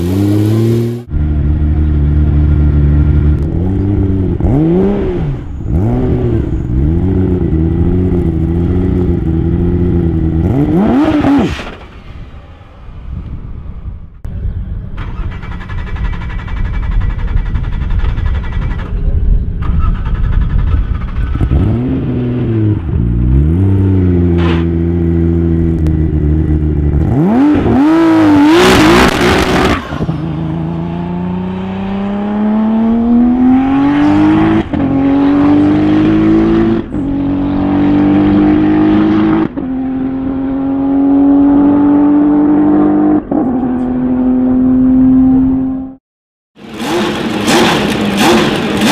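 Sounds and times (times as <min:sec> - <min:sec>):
sports car engine revving: 0:21.2 - 0:46.0, 0:46.6 - 0:48.9.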